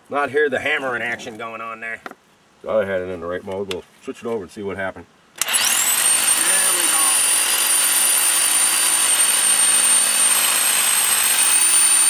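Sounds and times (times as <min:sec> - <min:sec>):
hammer drill drilling into concrete: 0:05.4 - 0:12.0.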